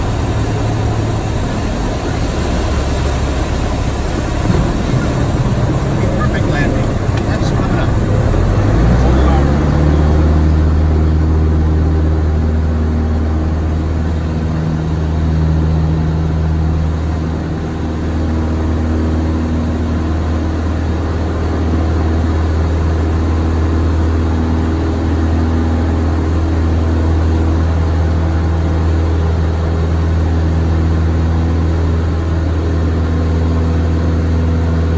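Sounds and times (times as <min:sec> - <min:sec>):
light aircraft engine droning: 0:00.0 - 0:34.9.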